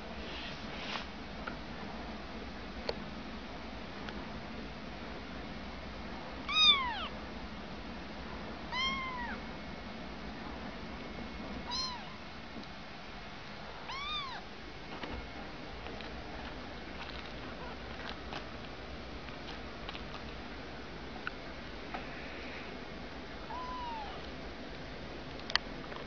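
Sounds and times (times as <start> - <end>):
kitten meowing: 6.5 - 7.1, 8.7 - 9.4, 11.7 - 12.2, 13.8 - 14.4, 23.5 - 24.3.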